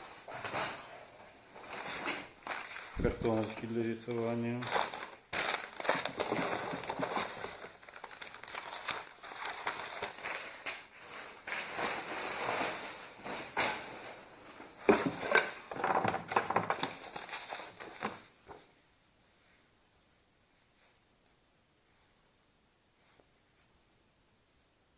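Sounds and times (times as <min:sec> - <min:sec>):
paper and cardboard rustling: 0:01.5 - 0:18.6.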